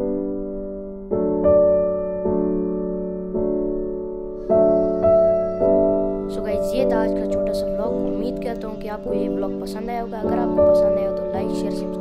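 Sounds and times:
soft piano chords: 0.0 - 12.0
person speaking: 6.3 - 12.0.

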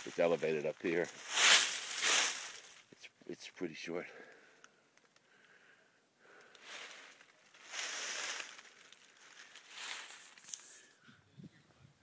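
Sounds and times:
dry rustling: 0.1 - 2.9, 6.5 - 10.9.

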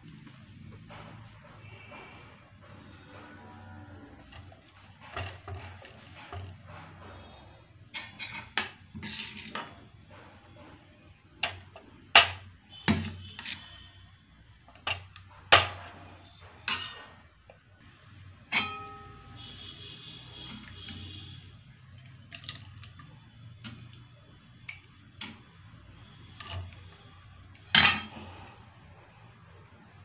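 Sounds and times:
metal bowls clinking on plate: 16.6 - 17.2, 18.5 - 19.7, 27.6 - 28.4.

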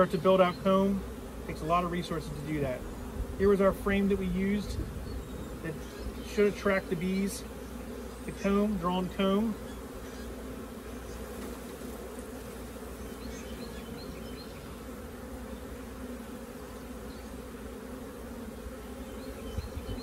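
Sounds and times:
bees buzzing: 0.0 - 20.0.

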